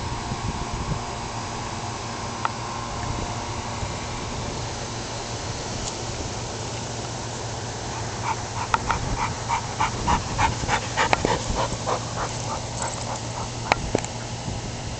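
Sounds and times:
dog high-pitched vocal sounds: 0:08.0 - 0:13.7.

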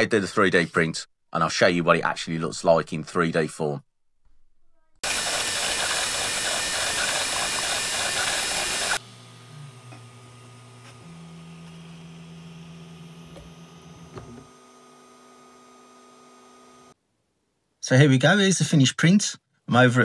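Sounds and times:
stepper motors humming: 0:05.0 - 0:14.6.

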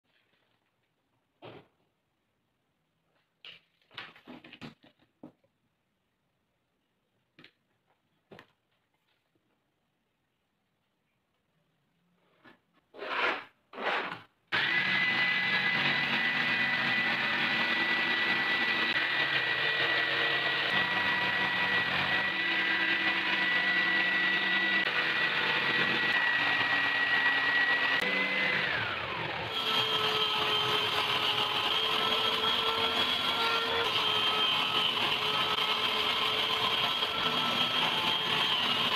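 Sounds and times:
electric jigsaw whining: 0:13.1 - 0:38.9
table saw running: 0:13.9 - 0:38.9.

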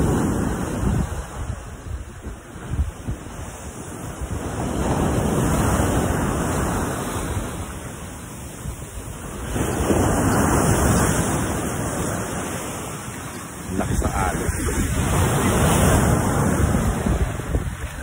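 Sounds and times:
surf breaking on beach and rocks: 0:00.0 - 0:18.0.

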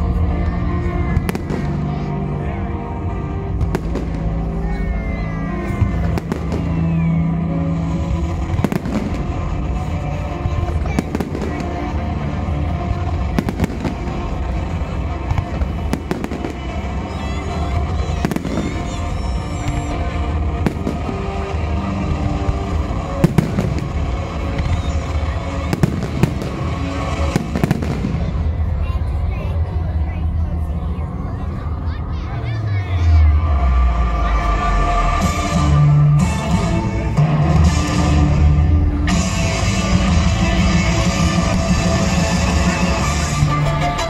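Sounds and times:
steady music: 0:00.0 - 0:44.0
fireworks bursting: 0:01.0 - 0:02.2, 0:03.4 - 0:04.9, 0:05.6 - 0:28.8
fireworks crackle: 0:03.4 - 0:05.0, 0:05.6 - 0:28.9.

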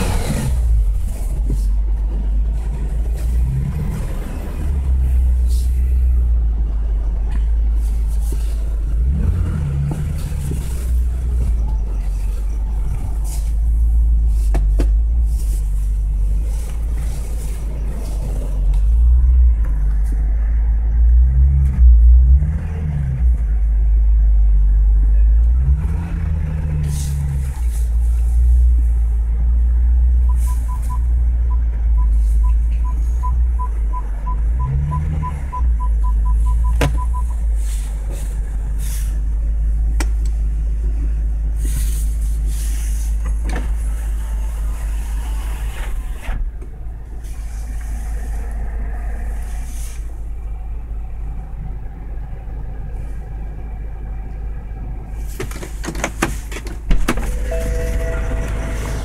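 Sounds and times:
car engine running low: 0:00.0 - 0:59.0
parking sensor beeps: 0:30.2 - 0:37.5, 0:56.9 - 0:59.0.

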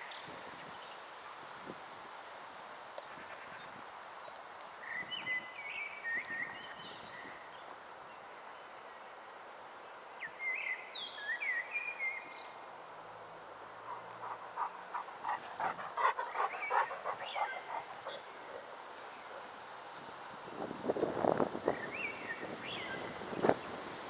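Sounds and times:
dog breathing quickly: 0:13.8 - 0:18.8
birds chirping: 0:13.8 - 0:19.6.

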